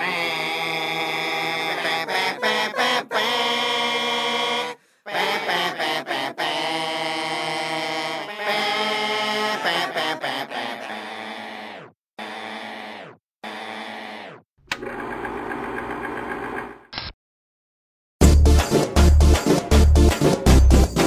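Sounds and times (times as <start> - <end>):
chant-like vocal music: 0.0 - 13.0.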